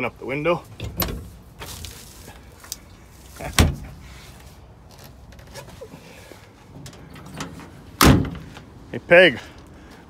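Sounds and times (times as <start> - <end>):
truck cab door clunk: 0.8 - 1.3, 3.5 - 4.0, 6.7 - 8.6.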